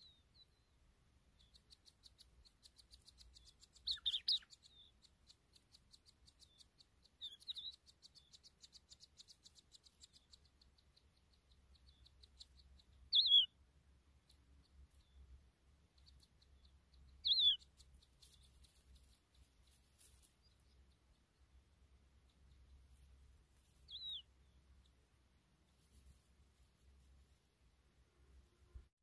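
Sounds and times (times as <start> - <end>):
louder bird calls: 13.1 - 13.6, 17.2 - 17.6.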